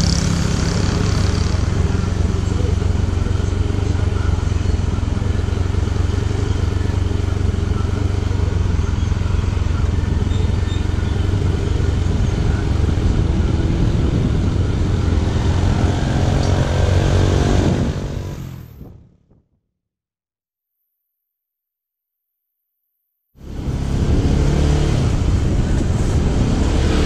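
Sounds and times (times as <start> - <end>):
motorcycle engine idling: 0.0 - 13.4
motorcycle tricycle engine: 0.0 - 18.8, 23.4 - 27.0.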